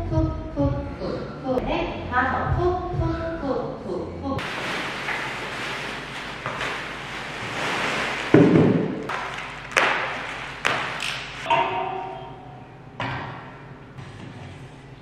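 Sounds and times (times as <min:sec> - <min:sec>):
plastic wrapping rustling: 0:04.4 - 0:11.5
chair thumping on hard floor: 0:08.3 - 0:09.0.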